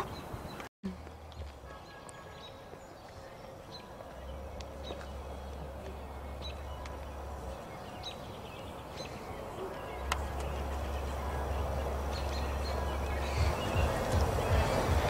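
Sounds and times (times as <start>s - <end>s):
steady low rumble: 3.5s - 15.0s.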